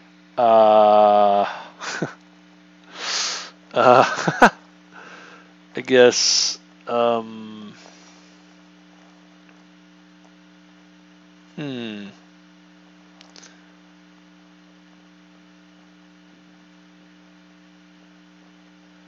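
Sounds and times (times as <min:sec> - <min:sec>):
electrical mains hum: 0:00.0 - 0:19.0
person groaning: 0:00.4 - 0:01.8, 0:11.6 - 0:12.2.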